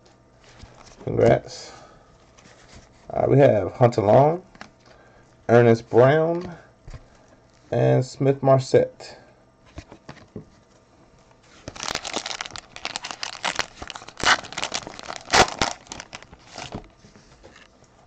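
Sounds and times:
wrapper crackling: 0:11.6 - 0:16.8.

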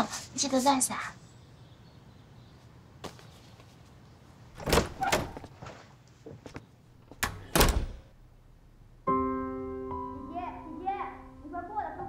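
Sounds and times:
door clunks and knocks: 0:04.6 - 0:05.5, 0:07.1 - 0:08.1.

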